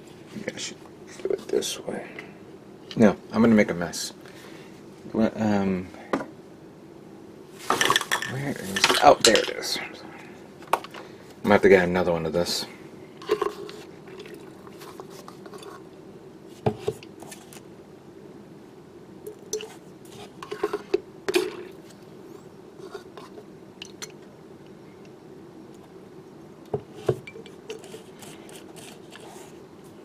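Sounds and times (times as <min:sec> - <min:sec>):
steady low hum: 0:00.0 - 0:30.0
liquid pouring: 0:14.1 - 0:14.8.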